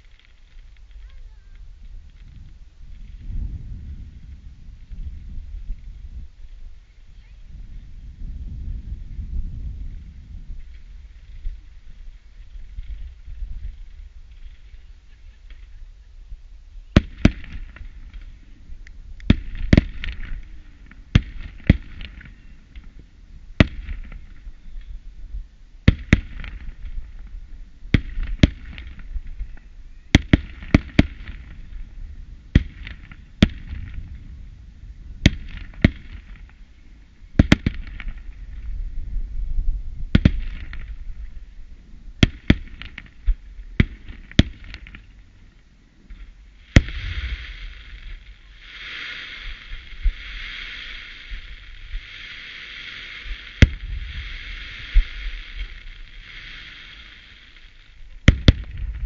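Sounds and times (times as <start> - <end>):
fireworks bangs: 16.9 - 23.0, 23.6 - 24.6, 25.8 - 34.4, 35.2 - 36.7, 37.4 - 38.7, 40.1 - 41.5, 42.2 - 45.2, 46.1 - 59.0
fireworks hiss: 16.9 - 25.1, 25.8 - 34.4, 46.1 - 59.0.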